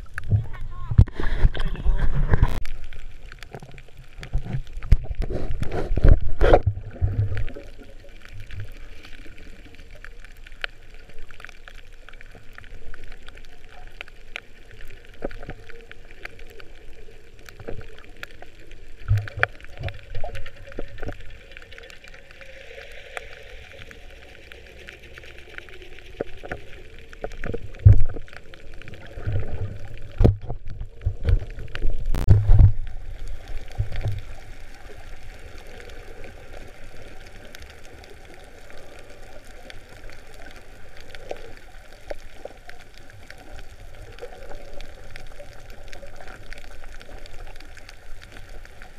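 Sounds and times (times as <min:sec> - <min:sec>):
muffled underwater hiss: 0:00.0 - 0:48.9.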